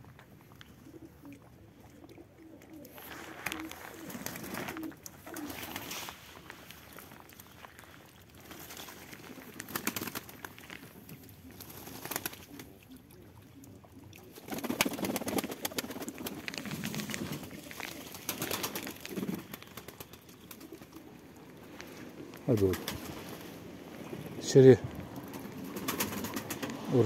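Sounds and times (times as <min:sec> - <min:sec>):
pigeons cooing: 0:00.7 - 0:06.2, 0:08.4 - 0:27.0
wings fluttering: 0:02.8 - 0:07.5, 0:08.3 - 0:12.9, 0:14.2 - 0:27.0.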